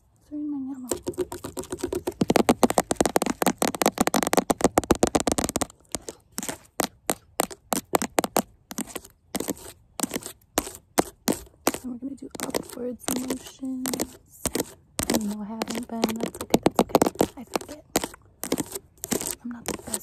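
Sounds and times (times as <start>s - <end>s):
fingernails tapping on hard object: 0.9s - 6.1s.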